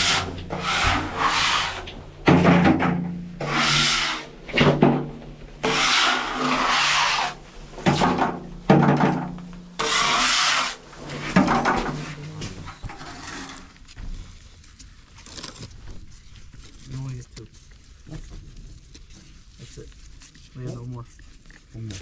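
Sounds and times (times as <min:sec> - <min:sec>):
scraper rasping on metal tank: 0:00.0 - 0:02.0, 0:03.4 - 0:05.0, 0:05.6 - 0:08.3, 0:09.8 - 0:11.4.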